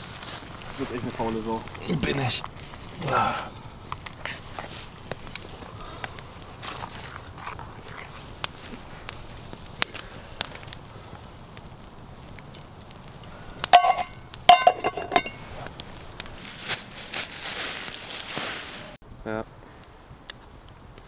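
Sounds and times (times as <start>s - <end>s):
campfire crackling and popping: 0.0s - 21.0s
metal lid clanking on pot: 13.7s - 15.4s.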